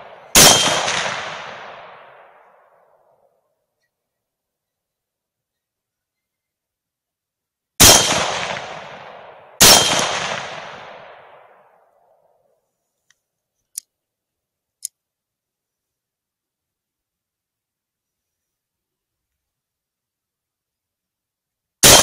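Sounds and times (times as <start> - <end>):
rifle shots echoing: 0.0 - 2.8, 7.8 - 11.8, 21.8 - 22.0.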